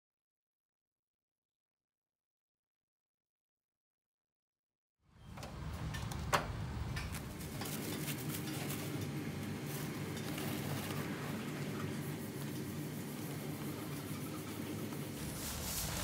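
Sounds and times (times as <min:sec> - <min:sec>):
room hum: 0:05.1 - 0:16.0.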